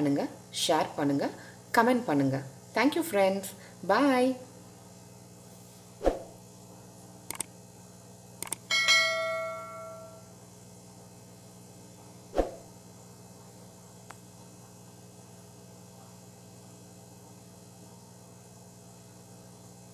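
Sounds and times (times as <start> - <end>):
faint steady hum: 0.0 - 19.9
mouse clicks: 7.3 - 7.5, 8.4 - 8.6
notification bell dinging: 8.7 - 10.2.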